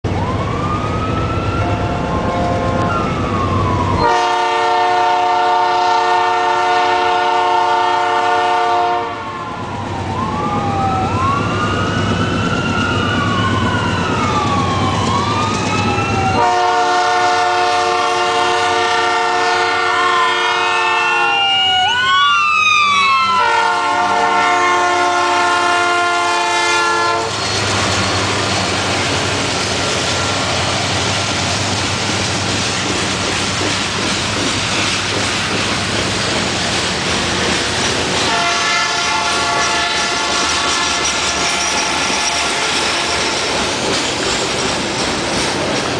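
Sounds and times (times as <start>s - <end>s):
train rumbling by: 0.0s - 45.9s
ambulance siren wailing: 0.1s - 30.5s
locomotive air horn blasts: 1.8s - 2.9s, 4.0s - 9.4s, 16.4s - 21.4s, 23.3s - 27.4s, 38.2s - 43.2s.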